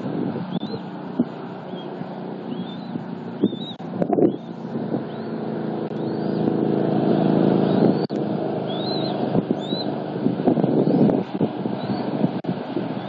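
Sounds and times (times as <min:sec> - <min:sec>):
vehicle engine rumble: 0:00.0 - 0:13.0
eagle chick peeping: 0:01.6 - 0:05.4, 0:07.6 - 0:09.9.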